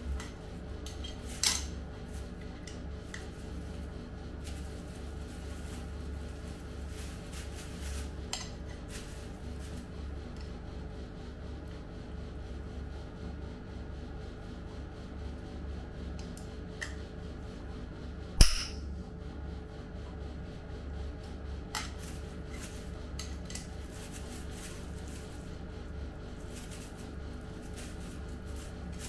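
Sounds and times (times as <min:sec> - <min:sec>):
steady low hum: 0:00.0 - 0:29.0
metal knock: 0:18.4 - 0:18.8.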